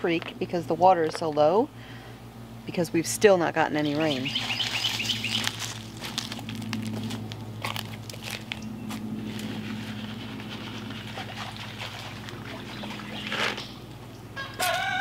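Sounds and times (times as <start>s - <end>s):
steady low hum: 0.0s - 15.0s
footsteps crunching on dry leaves: 4.2s - 13.7s.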